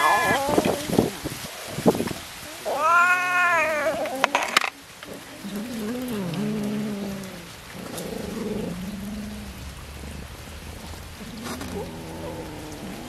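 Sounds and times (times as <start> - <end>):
cat crying: 0.0 - 1.0, 2.5 - 4.8
cats chewing wetly: 3.6 - 13.0.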